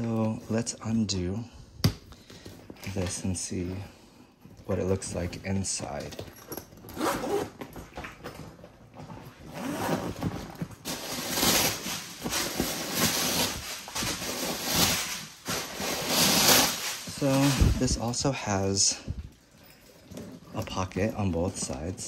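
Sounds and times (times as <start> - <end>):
bag rustling: 6.3 - 21.7
zipper being unzipped: 6.9 - 7.6, 9.4 - 10.3.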